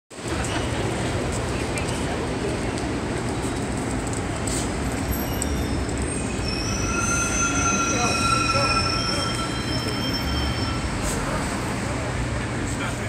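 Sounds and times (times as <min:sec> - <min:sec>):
city traffic rumble: 0:00.1 - 0:13.0
high metallic squeal: 0:05.1 - 0:11.7.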